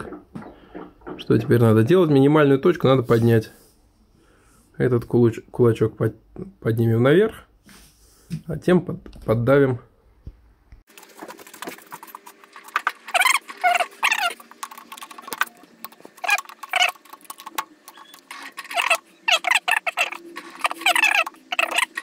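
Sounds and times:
short wavering squeals: 0:13.1 - 0:22.0.

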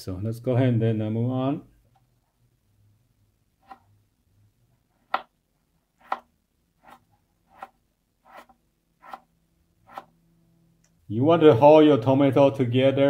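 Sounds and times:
knife chopping on cutting board: 0:06.0 - 0:09.3, 0:09.9 - 0:10.1.

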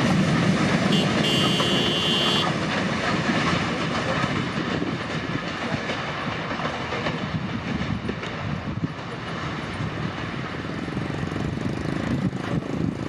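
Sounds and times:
train wheels rumbling on rail: 0:00.0 - 0:13.0
clicks from rail joints: 0:02.5 - 0:09.4.

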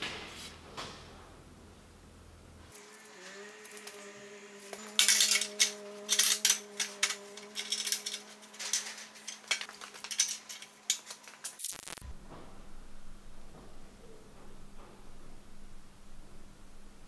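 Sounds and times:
steady hum: 0:01.4 - 0:17.0
steel parts clinking and clattering: 0:04.6 - 0:11.8.

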